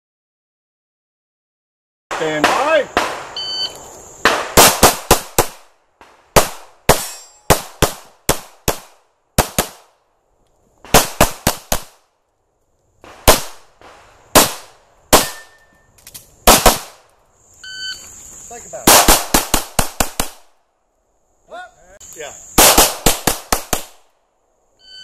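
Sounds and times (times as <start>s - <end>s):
pistol shots: 2.1s - 3.4s, 4.2s - 10.0s, 10.8s - 12.0s, 13.1s - 15.6s, 16.4s - 17.0s, 18.8s - 20.5s, 22.6s - 24.0s
shot timer beep: 3.4s - 3.8s.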